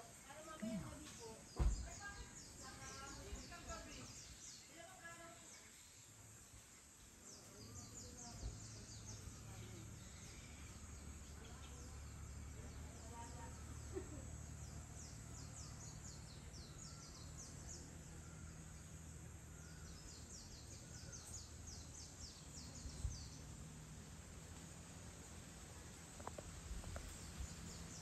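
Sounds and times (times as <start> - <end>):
soft bump: 1.5 - 2.0.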